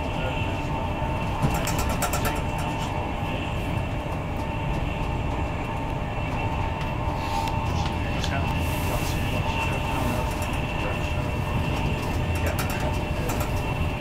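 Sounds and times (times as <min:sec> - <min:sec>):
faint steady whine: 0:00.0 - 0:14.0
train wheels rumbling on rail: 0:00.0 - 0:14.0
clicks and rattles: 0:01.4 - 0:02.8, 0:12.0 - 0:13.7.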